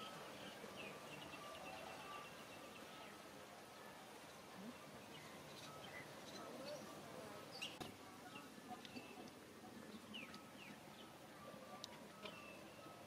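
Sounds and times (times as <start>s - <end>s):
faint bird chirps: 0.0s - 13.0s.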